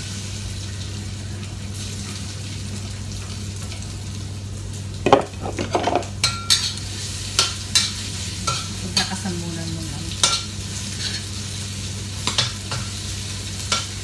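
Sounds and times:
food sizzling in hot oil: 0.0 - 14.0
spatula scraping a wok: 10.2 - 11.4.

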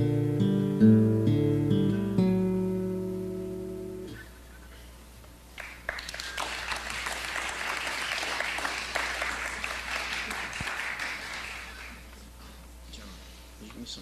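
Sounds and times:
audience applauding: 5.6 - 12.1.

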